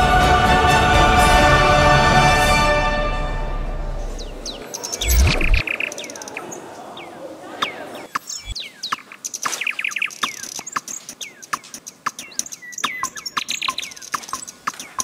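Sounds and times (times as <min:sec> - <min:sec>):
birds chirping: 0:03.8 - 0:15.0
bird rattling trill: 0:09.4 - 0:15.0.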